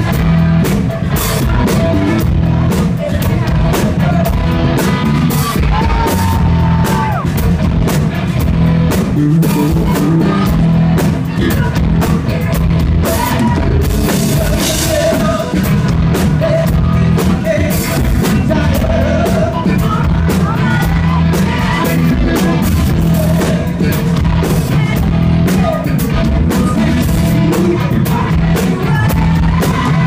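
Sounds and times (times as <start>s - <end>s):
person singing: 0.0s - 7.4s, 8.9s - 30.0s
live rock band playing: 0.0s - 30.0s.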